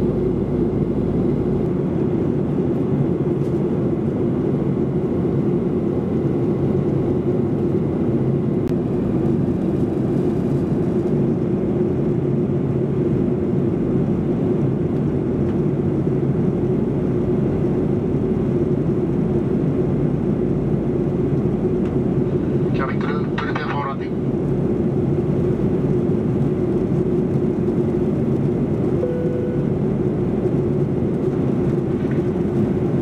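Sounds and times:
jet engine drone: 0.0s - 33.0s
steady cabin hum: 19.6s - 33.0s.

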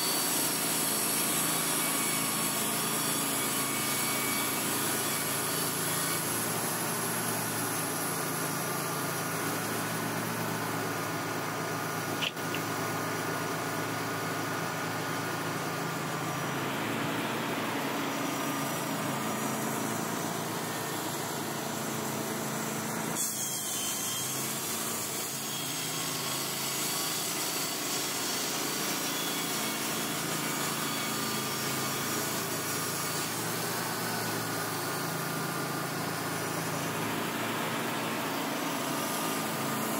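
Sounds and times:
band blade sawing a log: 0.0s - 11.0s, 23.1s - 39.9s
sawmill engine humming: 0.0s - 23.2s, 28.6s - 39.9s
sharp click: 12.2s - 12.7s.

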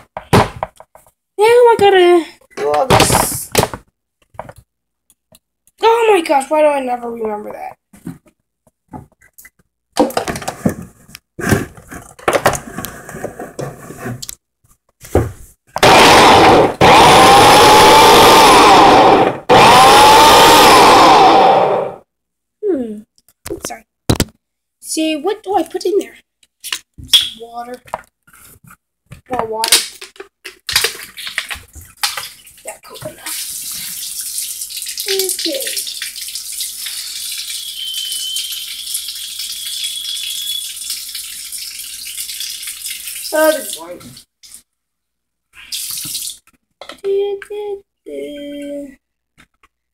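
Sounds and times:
electric blender motor whine: 15.8s - 22.0s
tap water running into sink: 30.8s - 44.2s
faint high whistle: 37.4s - 40.9s.

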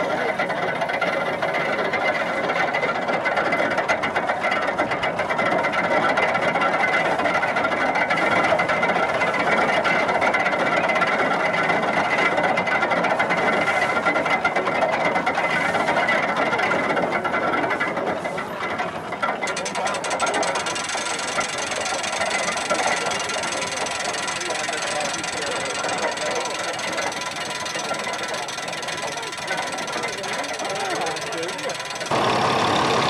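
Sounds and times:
constant high whine: 0.0s - 33.0s
threshing machine whirring and rattling: 18.7s - 33.0s.

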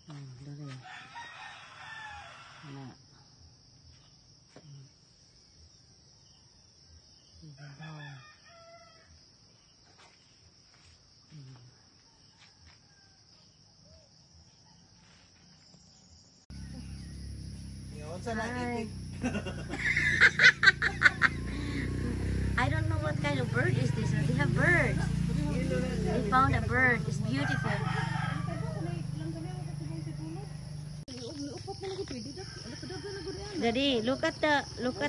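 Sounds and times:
rooster crowing faintly: 0.7s - 2.8s, 27.3s - 29.4s.

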